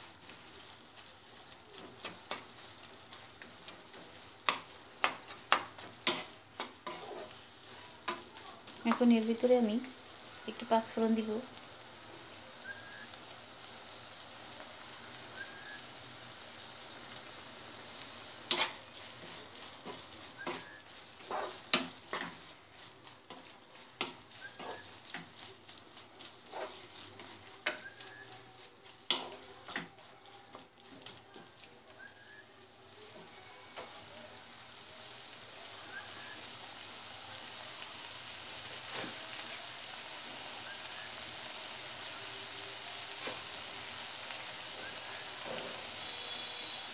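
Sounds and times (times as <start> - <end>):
food sizzling in oil: 0.0 - 46.9
wooden spatula scraping pan: 3.4 - 9.4, 18.4 - 31.6.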